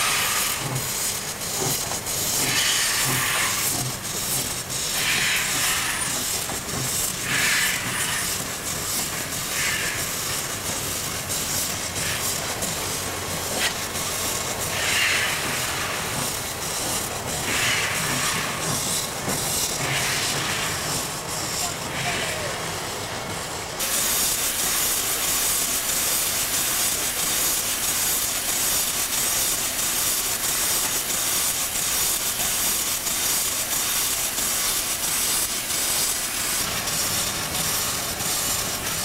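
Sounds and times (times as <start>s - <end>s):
exhaust steam puffs: 0.0s - 22.9s
steam locomotive hissing: 0.0s - 39.0s.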